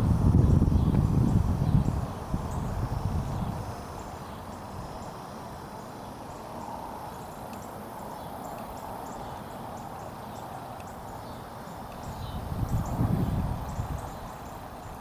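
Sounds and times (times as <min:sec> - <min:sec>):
faint high ticks: 0:07.2 - 0:07.8, 0:08.4 - 0:09.2, 0:10.7 - 0:11.0, 0:11.9 - 0:12.2.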